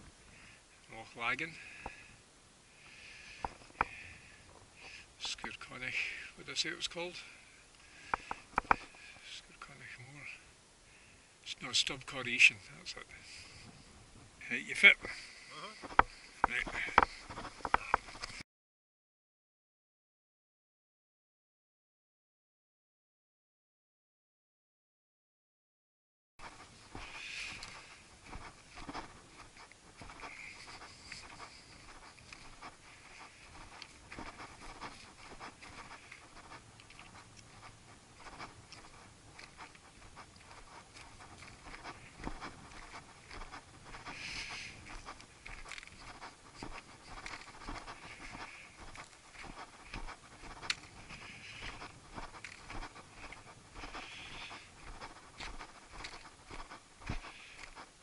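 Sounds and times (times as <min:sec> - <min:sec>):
person breathing: 0:00.2 - 0:00.8, 0:01.5 - 0:05.2, 0:07.2 - 0:09.3, 0:10.4 - 0:11.4, 0:13.2 - 0:13.9, 0:15.0 - 0:18.4, 0:26.4 - 0:29.2, 0:30.0 - 0:37.1, 0:40.5 - 0:57.9
footsteps crunching on stony path: 0:02.8 - 0:09.3, 0:12.4 - 0:18.4, 0:26.4 - 0:58.0.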